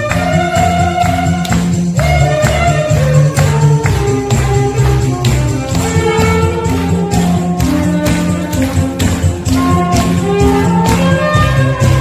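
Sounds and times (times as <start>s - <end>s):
congregation clapping along: 0.0s - 12.0s
live band with drum kit: 0.0s - 12.0s
saxophone melody in long notes: 0.0s - 12.0s.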